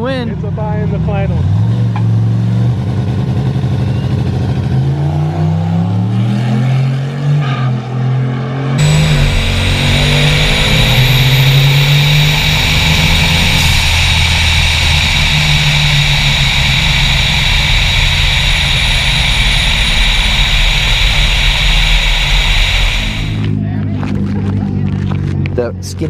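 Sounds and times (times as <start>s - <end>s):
race truck engine: 0.0s - 25.6s
turbo whine: 8.8s - 23.6s.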